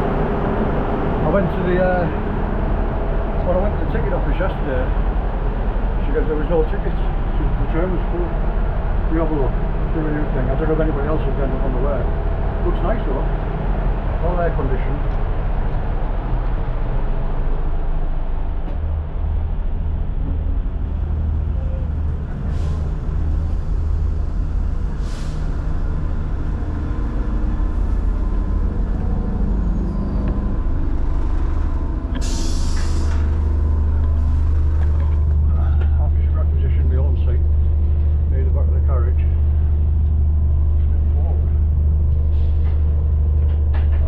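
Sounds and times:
train engine drone: 0.0s - 44.0s
air hisses: 32.2s - 33.4s.

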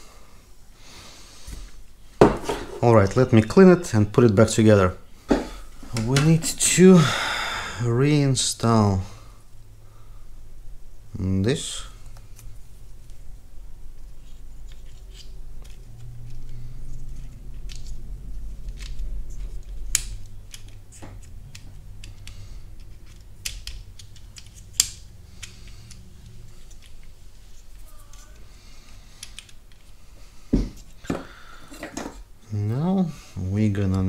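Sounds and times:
plastic clicks and snaps: 19.6s - 27.1s, 29.2s - 29.9s.

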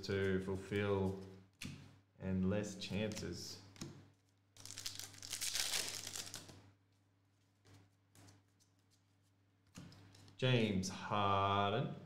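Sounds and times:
cards rustling: 4.2s - 6.6s
foil wrapper tearing and crinkling: 4.6s - 6.5s.

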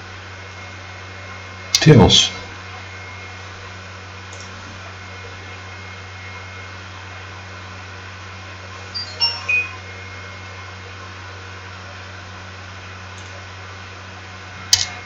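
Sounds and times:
low hum and hiss: 0.0s - 15.0s
short high-pitched squeaks: 8.9s - 9.8s.

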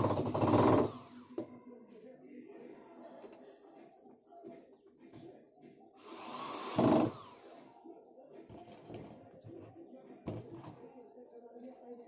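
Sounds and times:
cordless drill driving screw: 0.0s - 1.4s, 6.0s - 7.5s.

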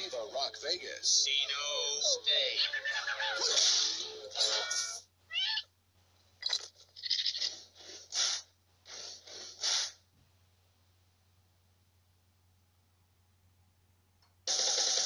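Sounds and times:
cartoon creature vocal sounds: 1.4s - 5.6s.

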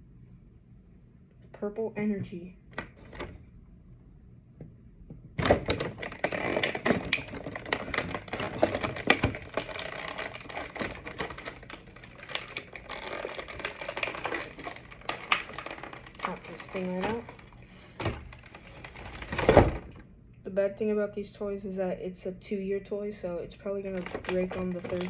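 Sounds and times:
plastic packaging crinkling: 5.4s - 20.0s, 23.8s - 25.0s.

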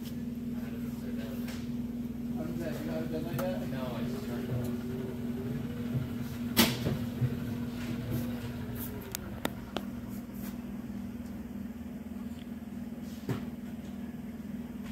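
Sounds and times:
exercise machine humming: 0.3s - 12.2s.

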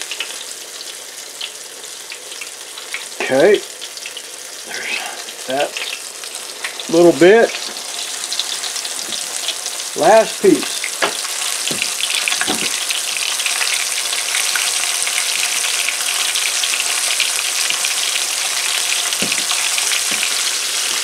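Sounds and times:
fish frying in hot oil: 0.0s - 21.0s
soft knocks: 11.0s - 12.8s, 19.2s - 20.3s.

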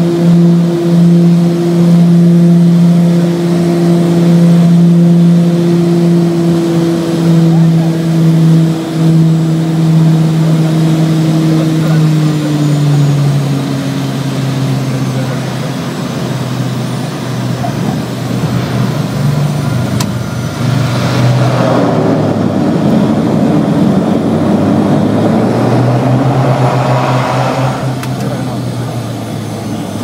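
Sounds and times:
propeller engines droning: 0.0s - 30.0s
loud rushing noise: 20.4s - 29.2s.

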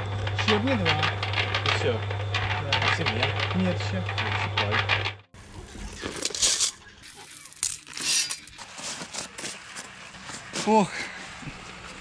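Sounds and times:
concrete mixer hum: 0.0s - 12.0s
stones clinking and rattling: 5.8s - 9.5s.

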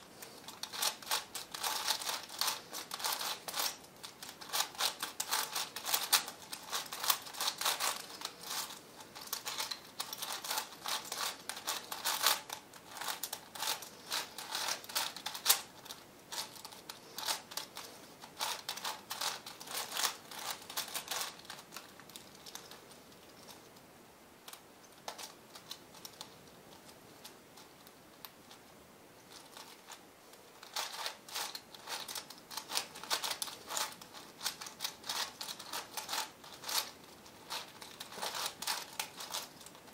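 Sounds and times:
plastic puzzle cube clicking: 0.5s - 15.7s, 30.6s - 39.8s.

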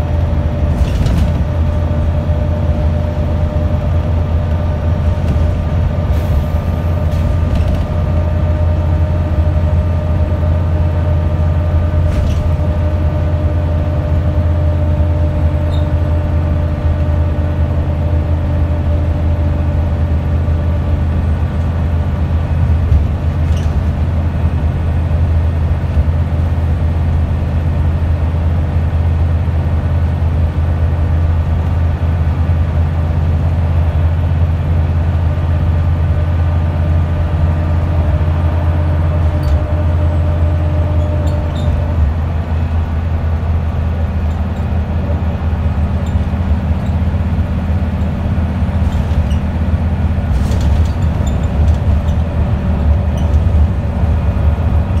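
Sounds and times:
bus engine drone: 0.0s - 55.0s
road noise: 0.0s - 55.0s.

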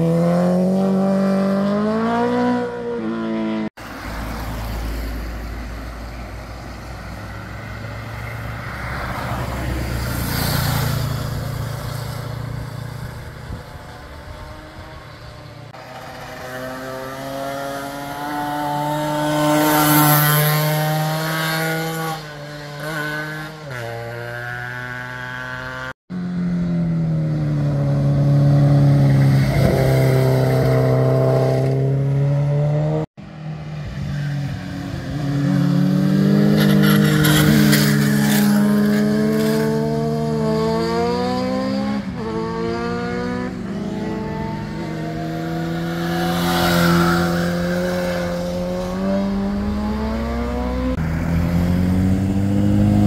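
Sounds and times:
motorcycle engines revving: 0.0s - 53.0s.

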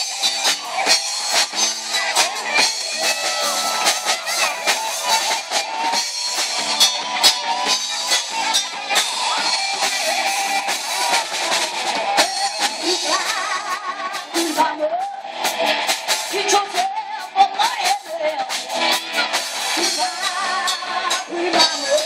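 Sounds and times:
drum kit: 0.0s - 22.0s
electric guitars: 0.0s - 22.0s
woman singing: 8.3s - 15.7s, 16.3s - 18.8s, 19.8s - 22.0s.

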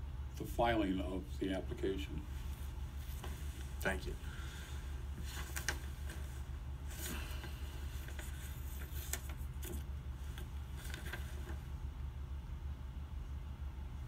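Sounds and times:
steady low hum: 0.0s - 14.0s
soft clicks and rustles: 2.4s - 3.9s, 5.1s - 11.8s.

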